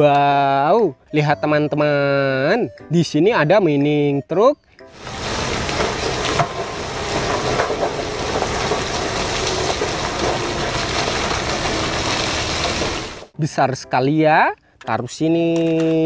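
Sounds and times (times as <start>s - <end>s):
low rumble: 5.0s - 13.3s
rock sliding off truck bed: 5.0s - 13.3s.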